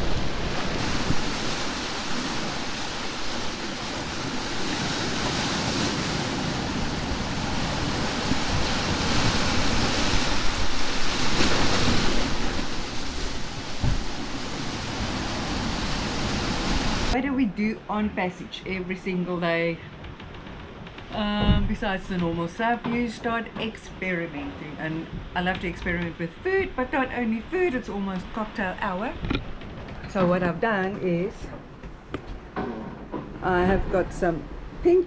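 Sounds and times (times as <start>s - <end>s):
wake and breaking waves rushing: 0.0s - 17.2s
wind buffeting microphone: 0.0s - 35.0s.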